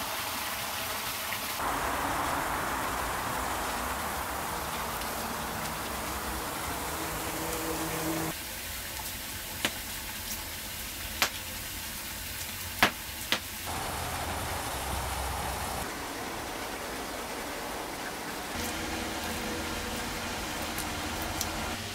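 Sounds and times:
steady background hiss: 1.6s - 8.3s, 13.7s - 21.8s
wood fire crackling: 1.6s - 8.4s, 12.3s - 17.4s, 18.4s - 21.9s.

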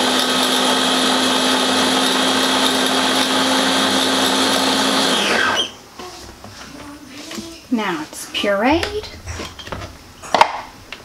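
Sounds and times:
blender motor running: 0.0s - 5.7s.

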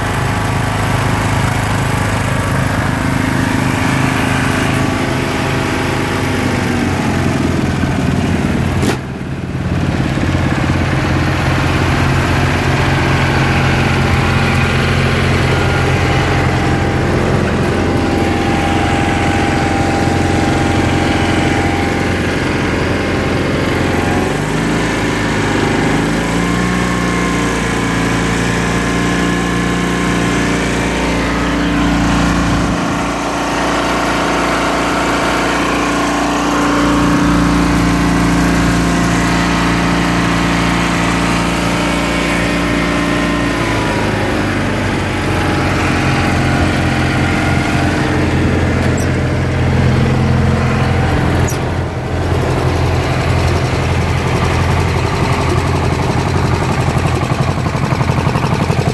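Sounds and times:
garden tractor engine running: 0.0s - 58.9s.

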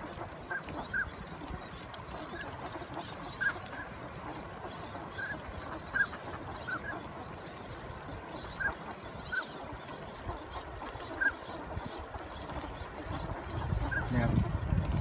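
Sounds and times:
ducks giving whistled calls: 0.0s - 1.5s, 2.1s - 7.1s, 7.9s - 15.0s.

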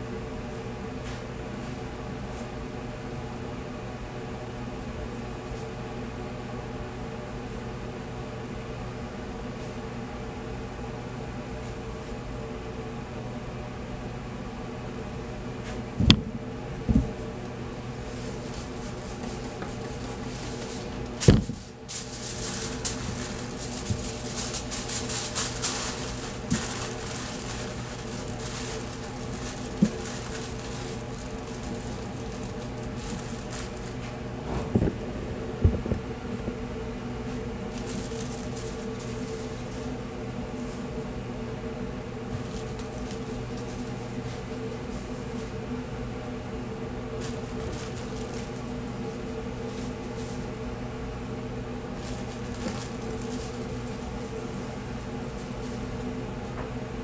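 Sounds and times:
steady fan hum: 0.0s - 57.0s
aluminium foil crinkling: 17.0s - 34.2s, 37.3s - 41.0s, 42.3s - 45.6s, 47.0s - 50.6s, 51.7s - 56.5s.

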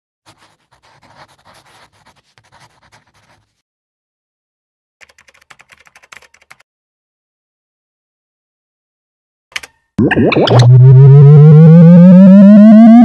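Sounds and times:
marker pen scratching paper: 0.3s - 3.6s
keyboard typing clicks: 5.0s - 6.6s.

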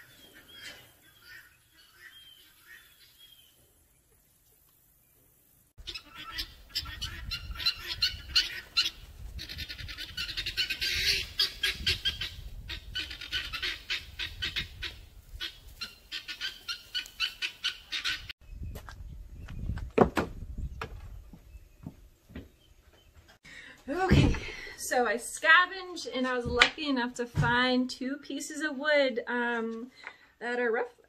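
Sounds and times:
chickens clucking: 5.8s - 18.3s.

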